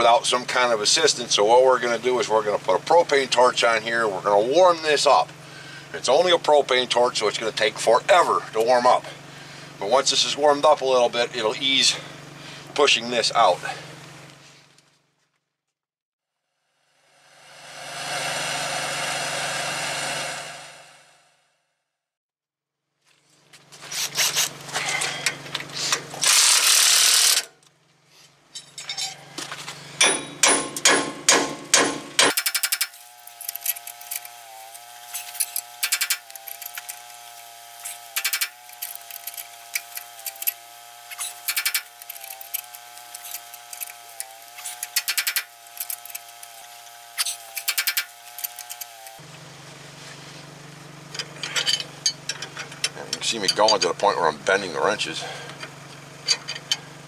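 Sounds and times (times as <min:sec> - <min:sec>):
steady wavering hum: 0:16.8 - 0:21.3
loud noisy burst: 0:17.0 - 0:21.3
metal clicks and clanks: 0:32.2 - 0:34.3, 0:35.2 - 0:37.0, 0:38.2 - 0:46.5, 0:51.1 - 0:54.0, 0:55.5 - 0:56.9.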